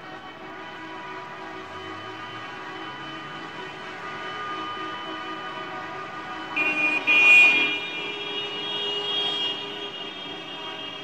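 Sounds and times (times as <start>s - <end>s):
street traffic: 0.0s - 11.0s
car horn honking: 3.9s - 11.0s.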